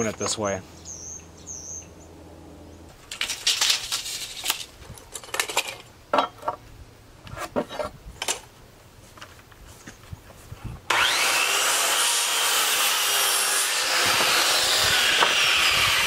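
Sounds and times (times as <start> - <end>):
lumber and tools clattering: 3.0 - 6.6.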